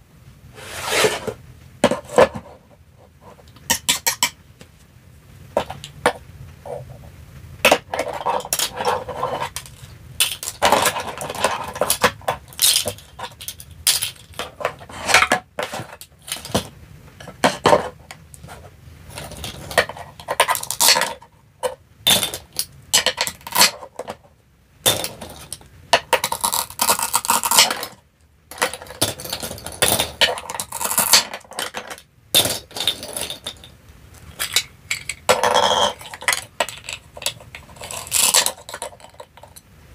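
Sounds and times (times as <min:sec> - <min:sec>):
plastic toy pieces clacking: 0:03.5 - 0:04.4, 0:07.6 - 0:17.9, 0:19.1 - 0:24.2, 0:24.8 - 0:39.6
plastic knife scraping toy fruit: 0:07.7 - 0:16.6, 0:35.3 - 0:39.6.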